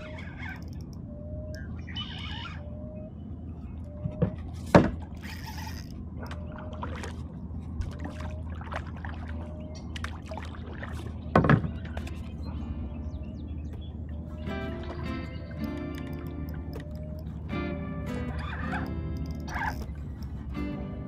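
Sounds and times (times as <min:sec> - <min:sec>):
paddle strokes through water: 0:04.3 - 0:21.0.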